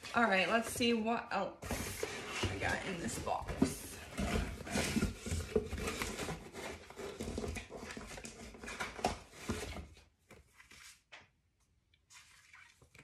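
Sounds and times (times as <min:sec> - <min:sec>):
paper and cardboard rustling: 0:01.6 - 0:11.2.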